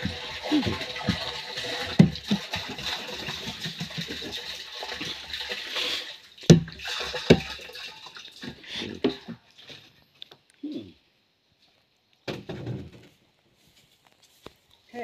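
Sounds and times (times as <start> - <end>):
water running and splashing: 0.0 - 9.8.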